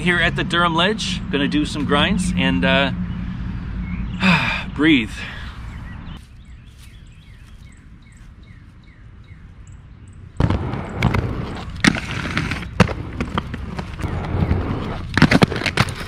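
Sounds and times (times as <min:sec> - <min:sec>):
bird chirping: 0:00.0 - 0:10.5
inline skates rolling on concrete: 0:10.4 - 0:16.0
skates grinding on concrete ledge: 0:10.4 - 0:16.0.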